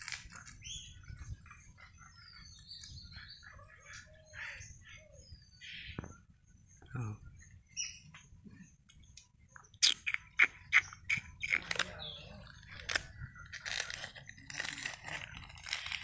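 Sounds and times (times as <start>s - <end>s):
plastic crunching and crinkling: 11.4s - 16.0s
squirrel gnawing plastic packet: 12.6s - 16.0s.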